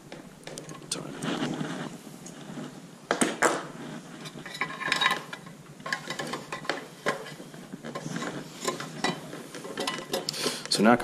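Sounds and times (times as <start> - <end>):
sheet metal box clinking and scraping: 4.2 - 10.3.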